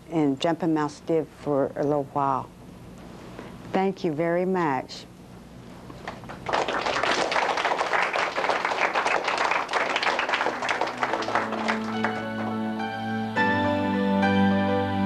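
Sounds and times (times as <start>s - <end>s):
children applauding: 6.1s - 12.7s.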